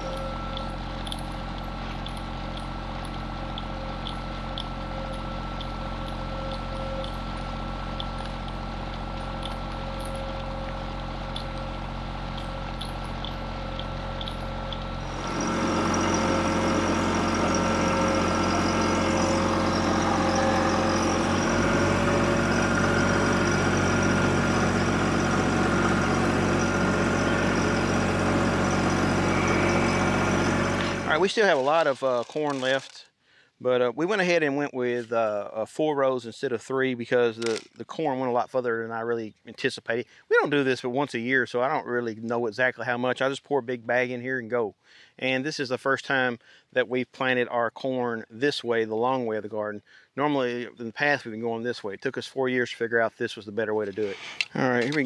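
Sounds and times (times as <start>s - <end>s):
diesel tractor engine running: 0.0s - 31.9s
faint regular ticking: 1.9s - 16.4s.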